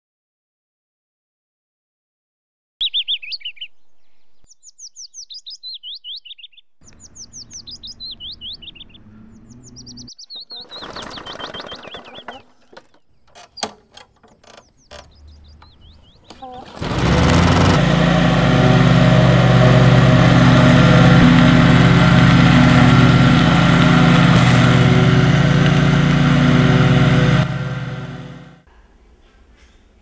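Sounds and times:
songbirds chirping: 2.8 - 17.1
faint outdoor background: 2.8 - 19.2.

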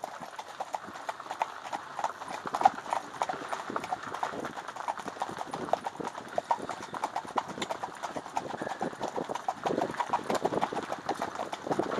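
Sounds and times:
horse hooves on gravel: 0.0 - 11.9.

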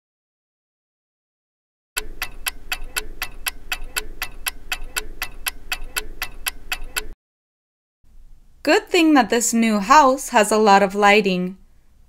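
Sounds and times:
rapid clock ticking: 2.0 - 7.2.

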